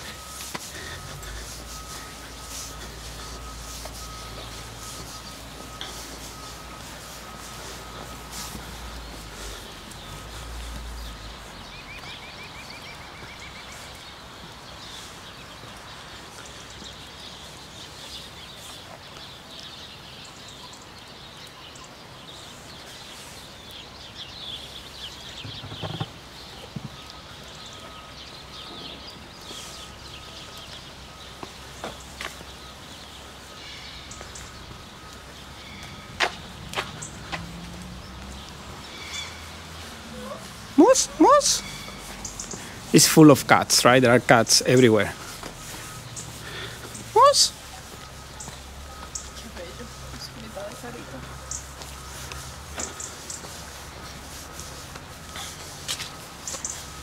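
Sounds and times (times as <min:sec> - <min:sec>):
outdoor hiss: 0:00.0 - 0:57.0
small birds chirping: 0:00.0 - 0:57.0.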